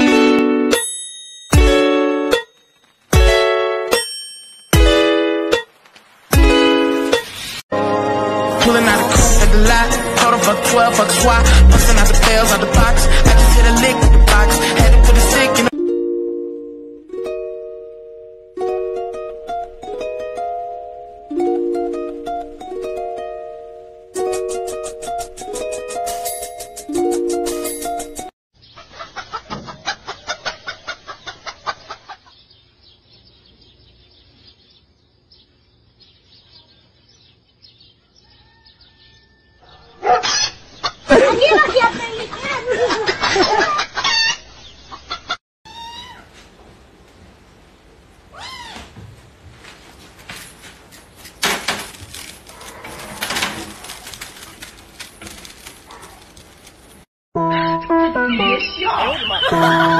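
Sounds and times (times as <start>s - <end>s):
chicken clucking: 28.6s - 32.4s
kittens scuffling on fabric: 48.9s - 57.0s.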